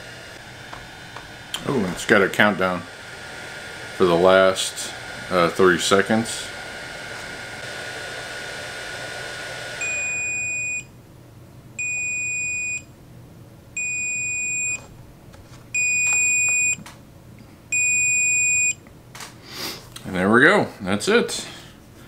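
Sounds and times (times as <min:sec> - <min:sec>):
air pump running: 0:00.0 - 0:10.4.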